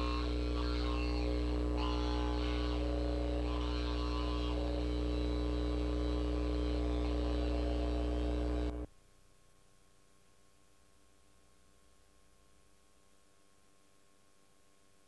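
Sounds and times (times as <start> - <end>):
electrical mains hum: 0.0 - 9.0.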